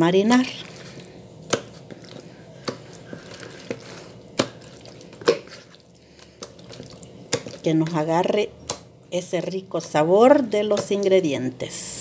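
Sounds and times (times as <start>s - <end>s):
wet meat squishing: 0.1s - 8.0s
wet meat slapping: 0.3s - 8.0s.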